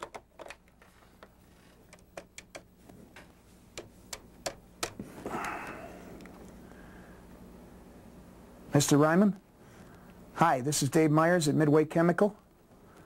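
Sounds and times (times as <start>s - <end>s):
phone keys clicking: 1.9s - 2.7s.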